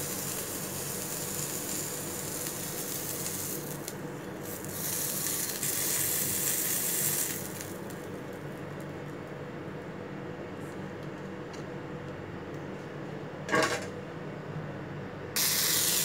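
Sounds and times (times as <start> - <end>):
food sizzling in oil: 0.0 - 8.1, 15.4 - 16.0.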